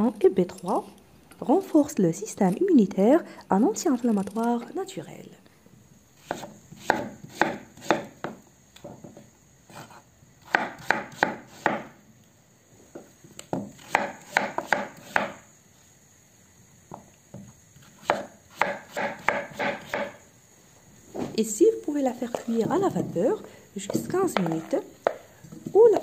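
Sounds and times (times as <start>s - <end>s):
knife chopping on wooden board: 6.2s - 8.4s, 10.5s - 11.9s, 13.5s - 15.4s, 18.0s - 20.2s.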